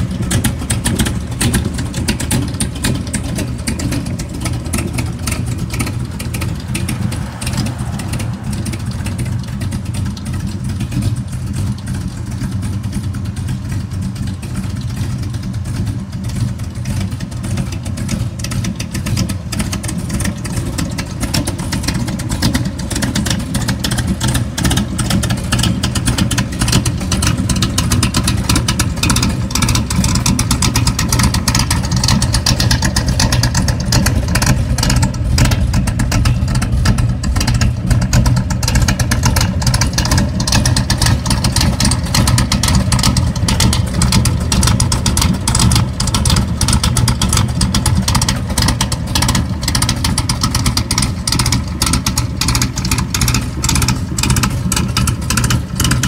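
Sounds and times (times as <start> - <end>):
car engine idling: 0.0 - 56.0.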